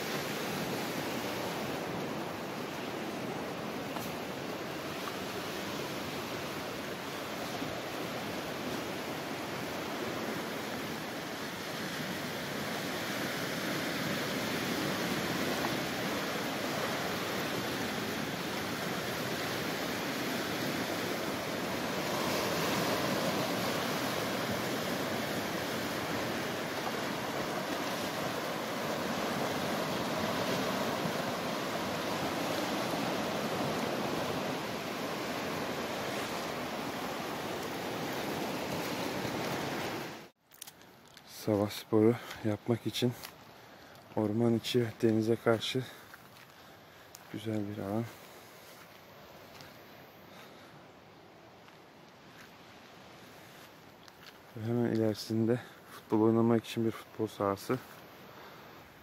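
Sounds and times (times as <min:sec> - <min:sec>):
surf breaking on rocky shore: 0:00.0 - 0:40.3.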